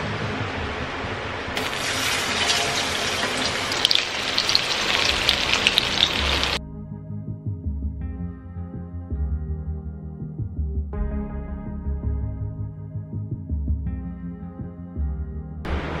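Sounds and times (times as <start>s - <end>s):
soft background music: 0.0s - 16.0s
fish deep-frying in oil: 1.6s - 6.6s.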